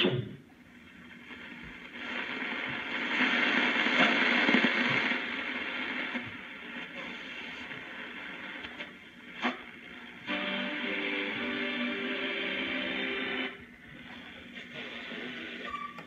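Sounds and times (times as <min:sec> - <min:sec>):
radio static hissing: 0:00.0 - 0:16.0.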